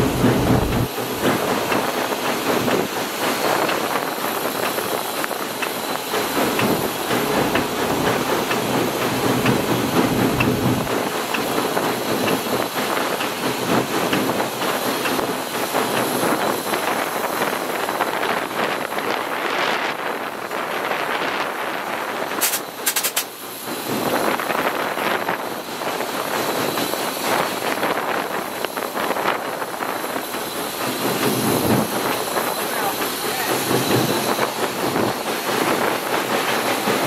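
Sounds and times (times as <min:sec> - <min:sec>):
rush of steam: 0:00.0 - 0:37.0
wheels on rails: 0:00.0 - 0:37.0
sharp high ticks: 0:22.4 - 0:23.3.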